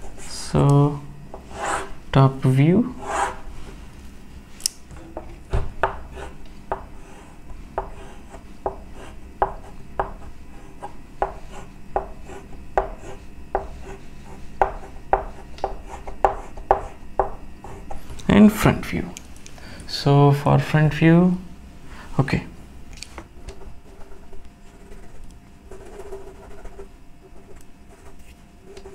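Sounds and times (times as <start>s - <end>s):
chalk tapping and scraping on blackboard: 5.8s - 18.0s, 23.5s - 28.9s.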